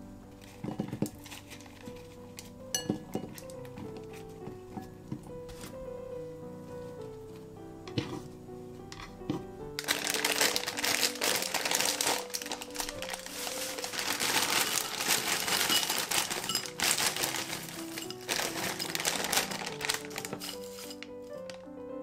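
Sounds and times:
background music: 0.0s - 22.0s
plastic bag crinkling: 0.4s - 2.6s, 9.7s - 21.7s.

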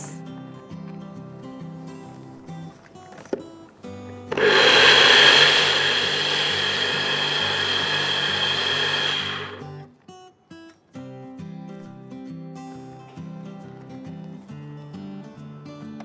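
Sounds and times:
blender switch click: 4.3s - 9.6s
blender motor running: 4.3s - 9.8s.

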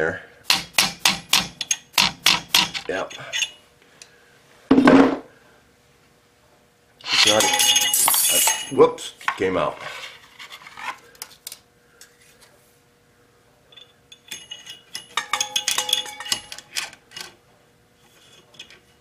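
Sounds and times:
metal wire clinking on metal: 7.0s - 8.9s, 13.7s - 17.3s.

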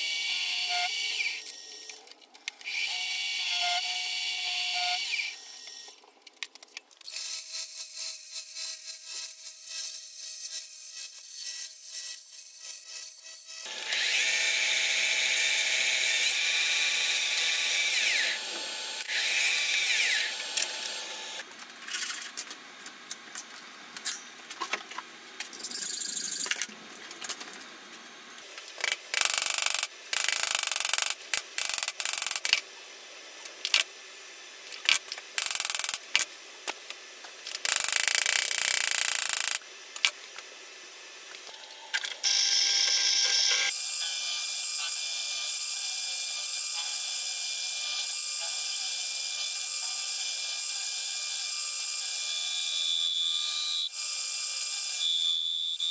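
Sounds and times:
high-pitched drilling through metal: 0.0s - 1.8s, 2.6s - 5.9s, 7.1s - 21.4s, 28.8s - 32.5s, 35.4s - 36.0s, 37.6s - 39.6s, 42.2s - 50.8s
short bursts of tool noise: 37.5s - 40.1s.

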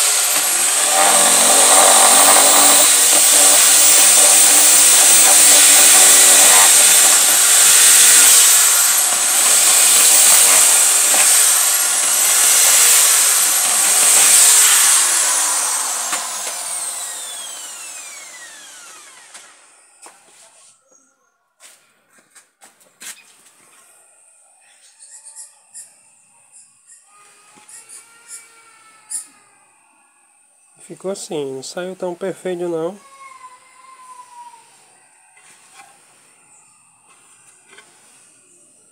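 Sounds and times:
electric drill boring into wood: 0.0s - 20.2s.

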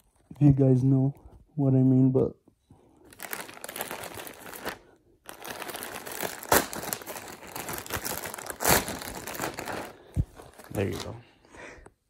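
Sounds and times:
plastic bag crinkling and tearing: 3.1s - 11.2s.

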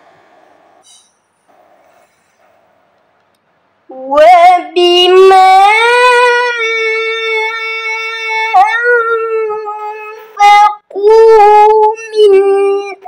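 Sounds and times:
boy chanting melodically: 3.9s - 13.0s.

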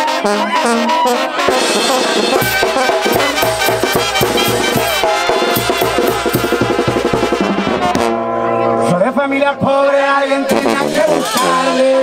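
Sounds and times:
brass band playing: 0.0s - 12.0s
sousaphone bass notes: 1.4s - 12.0s.

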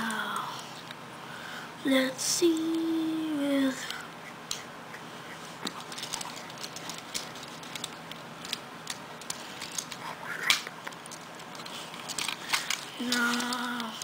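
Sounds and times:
plastic toy parts clicking: 5.7s - 14.0s.

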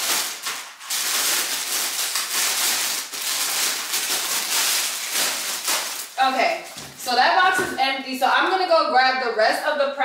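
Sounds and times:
plastic packs crinkling: 0.0s - 7.7s.

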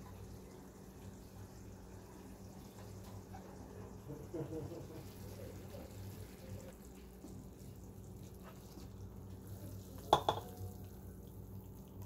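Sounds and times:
low background hum: 0.0s - 12.0s
pan clinking against bowl: 10.1s - 10.5s.

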